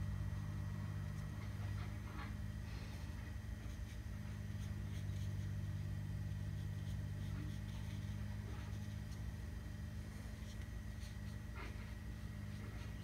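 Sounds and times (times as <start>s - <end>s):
low hum: 0.0s - 13.0s
brush stroking paper: 2.8s - 13.0s.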